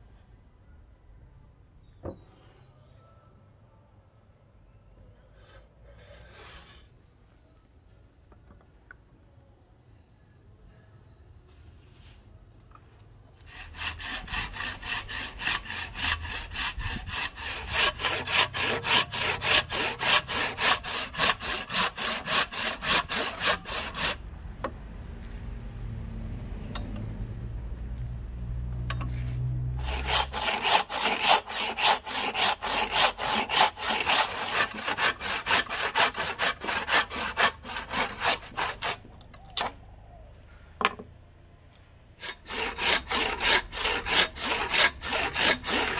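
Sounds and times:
hand saw cutting wood: 13.4 - 24.2, 29.8 - 39.7, 42.2 - 45.9.

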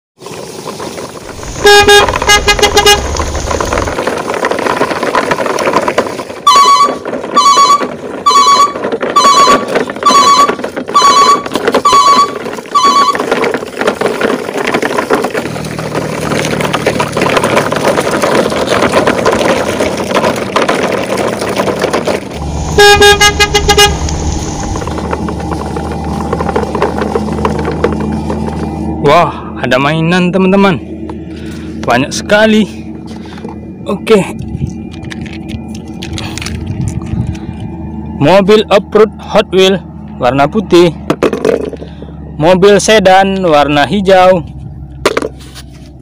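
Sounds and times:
steady rushing noise: 0.3 - 6.4, 17.1 - 38.4
low vehicle horn honks: 1.4 - 3.8, 22.4 - 25.1
higher-pitched horn beeps: 1.4 - 3.9, 6.5 - 13.2, 22.4 - 26.2.

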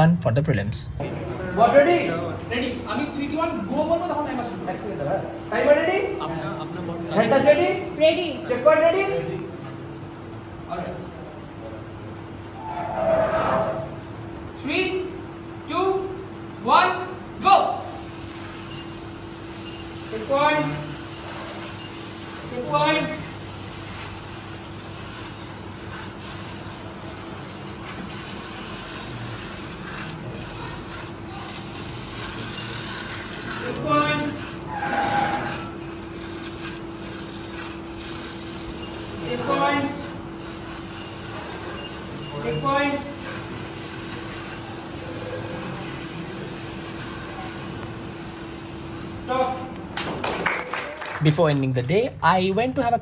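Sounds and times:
small motors whirring: 18.0 - 49.7.

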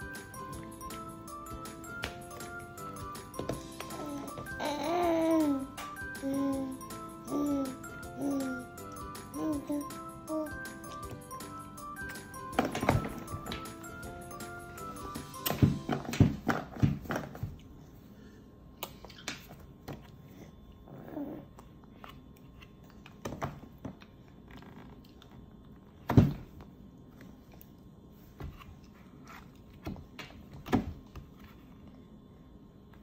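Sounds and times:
baby vocal sound: 3.8 - 10.6.

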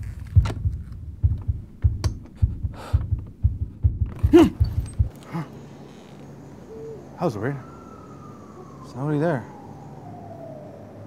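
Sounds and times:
heartbeat thumps: 0.0 - 5.2
faint hum: 0.0 - 11.0
breathing: 2.4 - 3.1.

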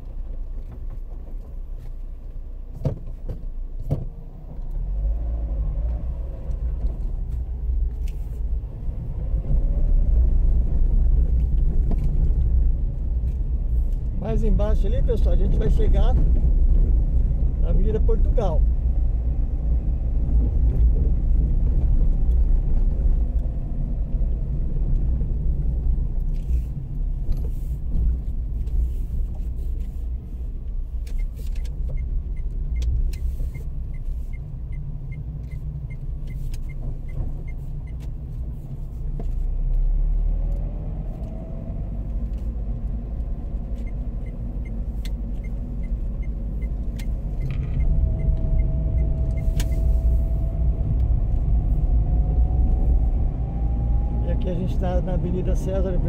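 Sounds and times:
car engine and road rumble: 0.0 - 56.0
light rattles and knocks: 0.1 - 4.2
turn signal ticking: 27.0 - 39.9, 40.5 - 52.2.

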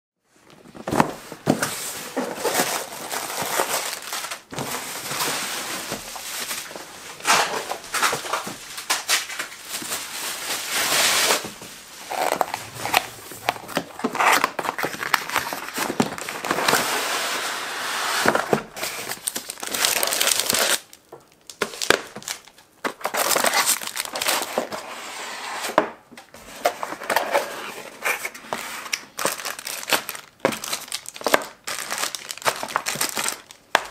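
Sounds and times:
cardboard box being unboxed: 0.6 - 8.5, 9.8 - 20.9, 26.4 - 33.9
plastic bags crinkling: 0.6 - 16.9, 18.5 - 24.7, 28.1 - 33.9.

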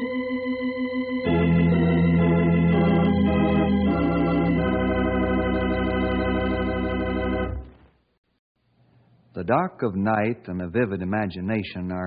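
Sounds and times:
organ chords: 0.0 - 7.8.

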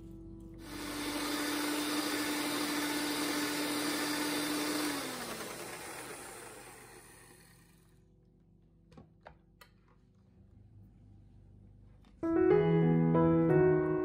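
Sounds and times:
electric hand mixer running: 0.6 - 8.0.

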